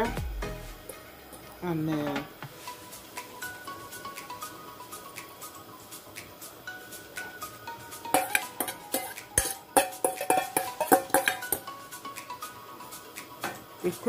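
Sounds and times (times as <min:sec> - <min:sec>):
metal bowl clanking against pan: 0:08.1 - 0:11.7.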